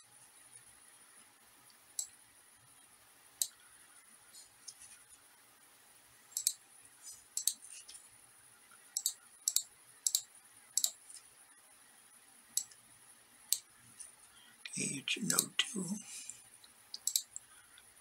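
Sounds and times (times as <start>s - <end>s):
computer mouse buttons clicking: 6.3s - 6.6s, 7.3s - 7.6s, 8.9s - 11.0s, 16.9s - 17.5s.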